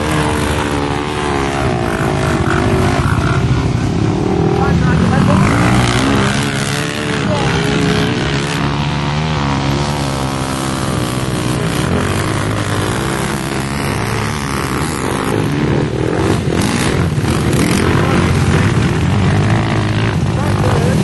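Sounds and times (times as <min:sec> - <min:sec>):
quad bike engines revving: 0:00.0 - 0:21.0.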